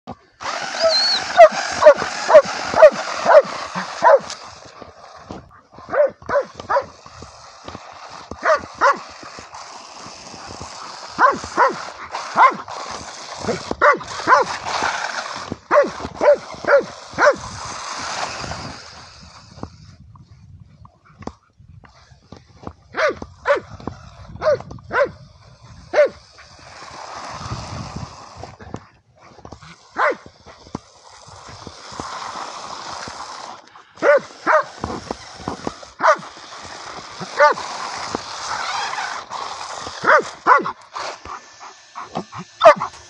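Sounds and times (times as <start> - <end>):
dog barking: 30.0 - 30.2, 40.1 - 40.7, 42.6 - 42.9.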